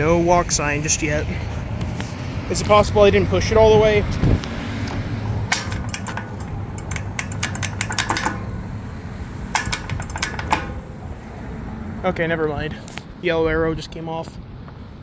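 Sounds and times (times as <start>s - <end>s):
low traffic rumble: 0.0s - 15.0s
crosswalk button clicks: 4.9s - 8.6s, 9.5s - 11.0s.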